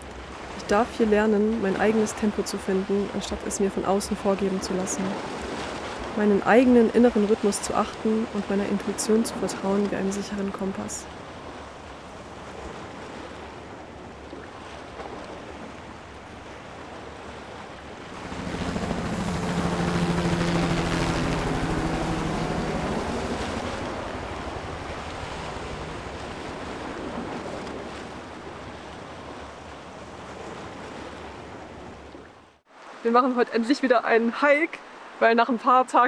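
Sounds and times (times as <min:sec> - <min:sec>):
sea waves washing: 0:00.0 - 0:35.3
steady hum: 0:18.0 - 0:27.0.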